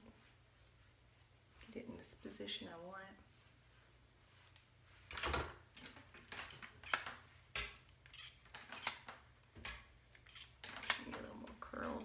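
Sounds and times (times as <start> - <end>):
hands rustling hair: 0.0 - 6.3.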